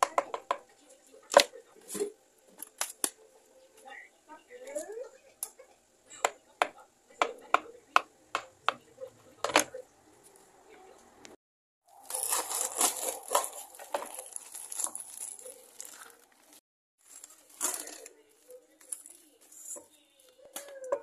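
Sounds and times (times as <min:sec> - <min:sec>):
plastic bag crinkling: 0:11.9 - 0:20.0.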